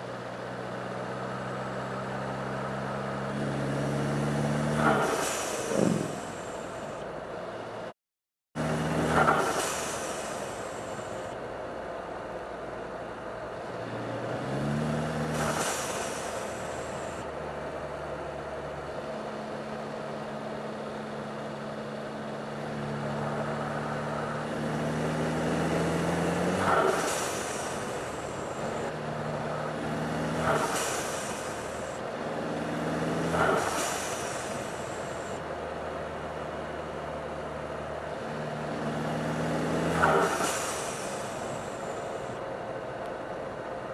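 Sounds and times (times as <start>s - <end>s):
blow-off valve whoosh: 4.8s - 7.0s, 9.2s - 11.3s, 15.3s - 17.2s, 30.4s - 32.0s, 33.3s - 35.4s, 40.0s - 42.4s
car engine revving: 22.4s - 35.4s.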